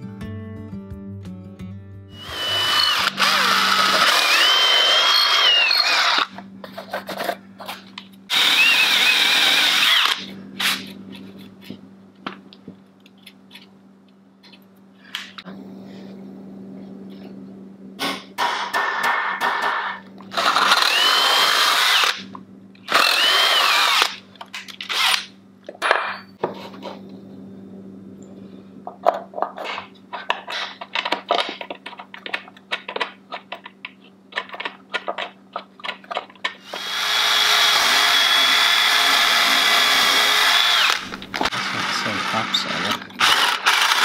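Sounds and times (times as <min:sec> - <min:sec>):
cordless drill running into wood: 0:02.2 - 0:06.3, 0:08.3 - 0:10.8, 0:20.4 - 0:22.2, 0:22.9 - 0:24.2, 0:36.6 - 0:44.0.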